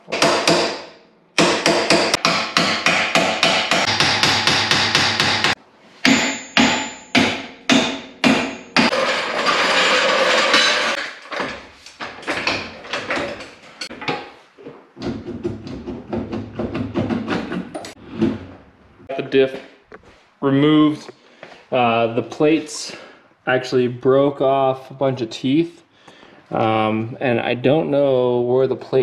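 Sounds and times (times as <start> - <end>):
hammer striking metal: 0.0 - 11.6.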